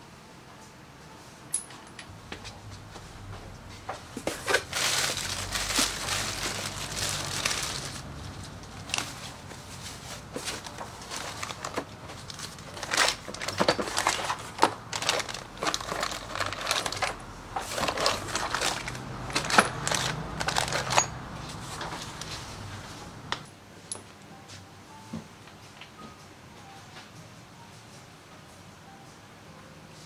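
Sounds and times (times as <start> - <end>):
metal parts clinking: 1.5 - 2.1, 12.4 - 21.2
plastic and paper crinkling: 2.4 - 23.0.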